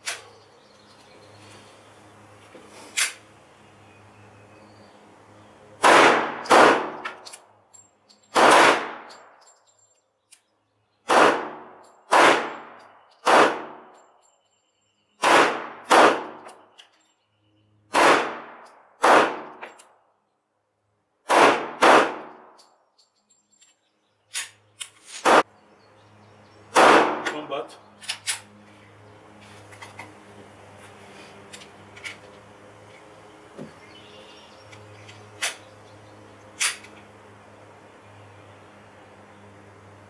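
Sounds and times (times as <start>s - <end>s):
pistol shots with echo: 5.8s - 7.2s, 8.4s - 9.1s, 11.1s - 13.9s, 15.2s - 16.4s, 17.9s - 19.6s, 21.3s - 22.3s, 26.7s - 27.4s.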